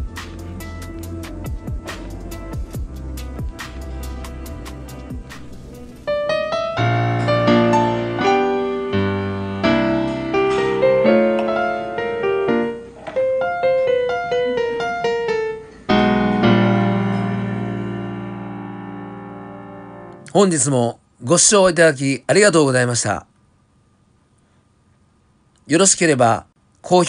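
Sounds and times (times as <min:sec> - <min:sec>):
piano music: 0:00.0 - 0:20.3.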